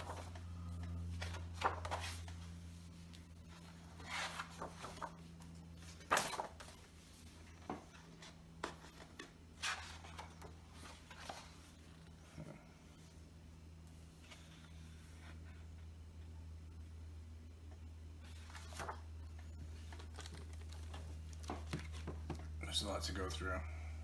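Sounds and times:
book pages turning: 0.0 - 12.3, 18.2 - 22.5
steady low hum: 0.0 - 24.0.

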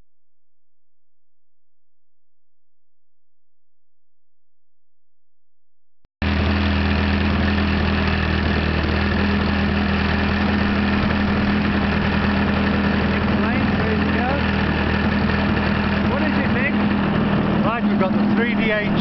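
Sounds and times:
model plane engine idling: 6.2 - 19.0.

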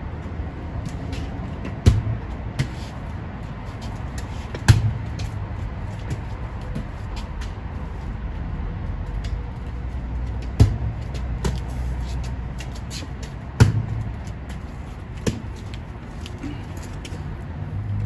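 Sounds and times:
steady low rumble: 0.0 - 18.0
volleyball slaps: 4.6 - 5.3, 13.6 - 14.1.

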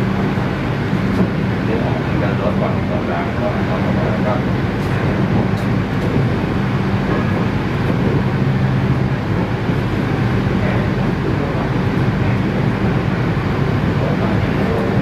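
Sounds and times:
train low hum: 0.0 - 15.0
train rushing noise: 0.0 - 15.0.

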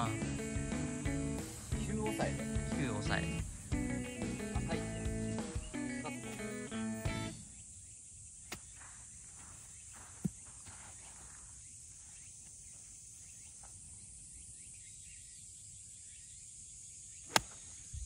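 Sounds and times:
high insect chorus: 0.0 - 18.0
golf club striking ball: 17.3 - 17.6.

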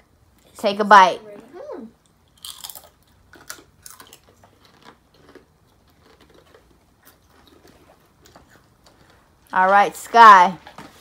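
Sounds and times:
crisps crunching: 2.3 - 9.5.

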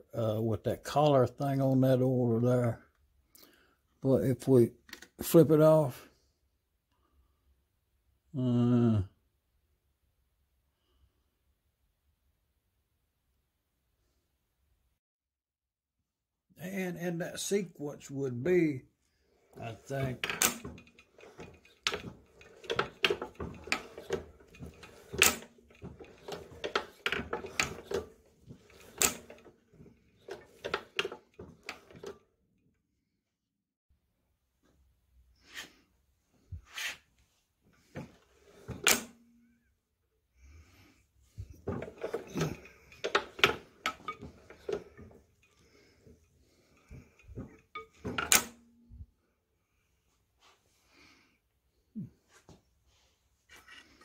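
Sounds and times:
metallic clicks and clunks: 19.6 - 32.3, 38.0 - 39.3, 41.4 - 48.7.

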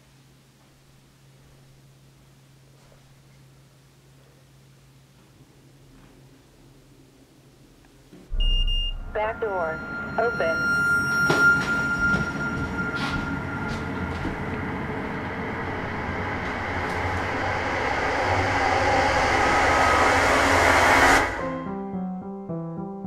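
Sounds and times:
rumbling hissing sound effect swell: 13.4 - 21.7.

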